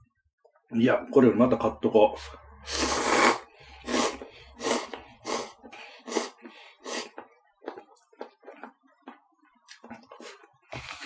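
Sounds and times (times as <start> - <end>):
noodles being slurped: 2.7 - 7.3
quiet chewing: 5.6 - 11.0.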